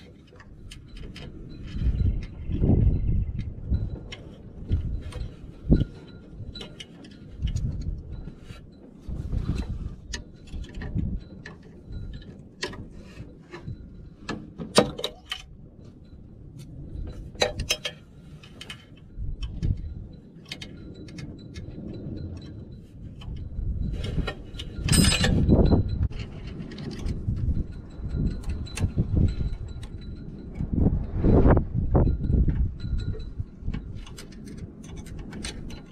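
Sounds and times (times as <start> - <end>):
metallic clicks and clinks: 0.0 - 35.9.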